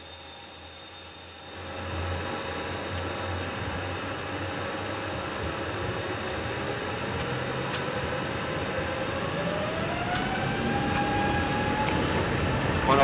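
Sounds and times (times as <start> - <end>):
jet engines steady rush: 0.0 - 13.0
rising engine whine: 0.0 - 13.0.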